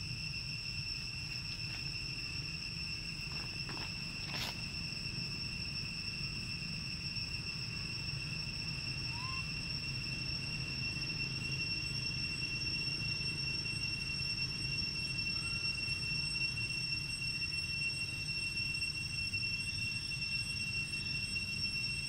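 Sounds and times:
insects droning: 0.0 - 22.0.

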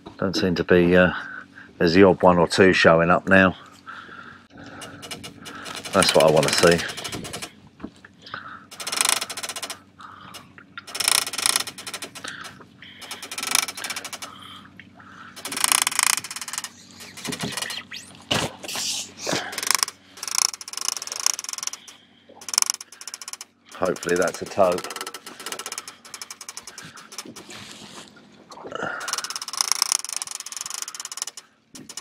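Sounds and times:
fishing reel clicker ratcheting: 4.8 - 7.5, 8.7 - 9.8, 10.4 - 14.4, 15.4 - 17.8, 19.4 - 27.6, 29.0 - 32.0.

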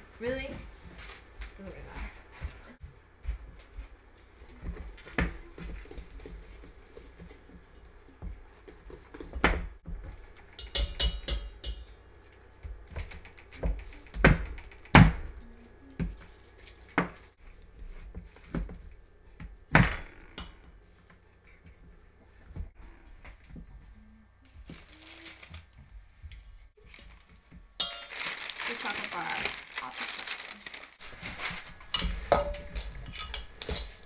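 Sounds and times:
whisk clinking against metal bowl: 10.6 - 11.9, 31.9 - 34.0.

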